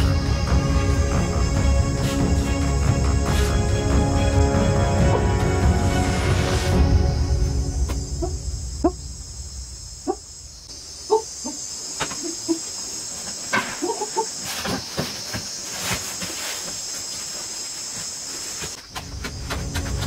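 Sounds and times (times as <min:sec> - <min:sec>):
high-pitched insect chorus: 0:00.0 - 0:20.0
knocks and scrapes: 0:13.1 - 0:20.0.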